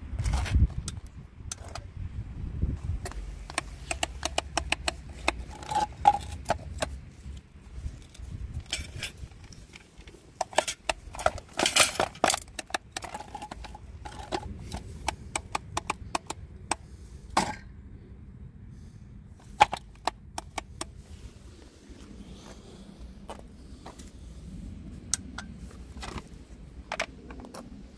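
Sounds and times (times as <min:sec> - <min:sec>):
plastic clicks and knocks: 0:03.0 - 0:07.0, 0:08.6 - 0:16.8, 0:19.6 - 0:20.9.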